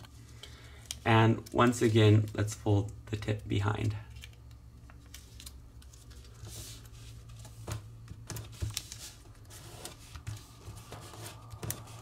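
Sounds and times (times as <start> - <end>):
low steady hum: 0.0 - 12.0
paper rustling: 5.1 - 12.0.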